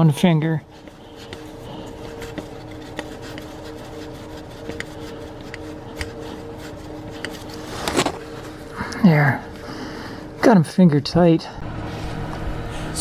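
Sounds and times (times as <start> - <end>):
steady two-tone hum: 0.0 - 13.0.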